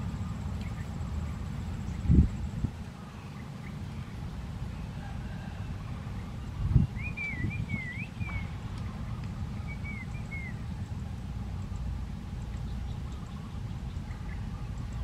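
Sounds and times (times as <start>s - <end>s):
bird warbling whistled song: 6.1s - 10.8s.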